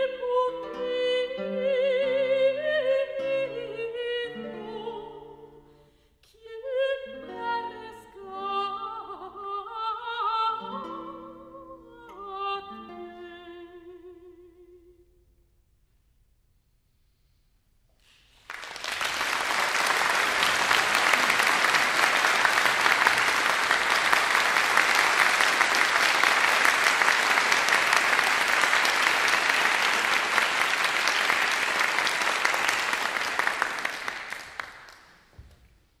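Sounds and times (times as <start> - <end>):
audience applauding: 18.0 - 35.3.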